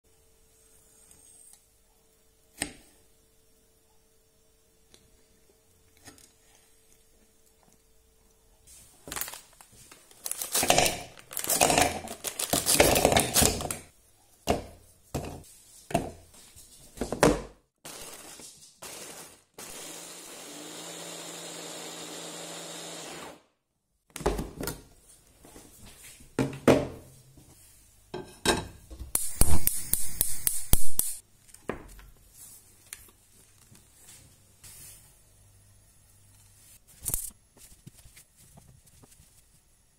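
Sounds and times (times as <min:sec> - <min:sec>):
electric food chopper grinding: 0:17.9 - 0:23.4.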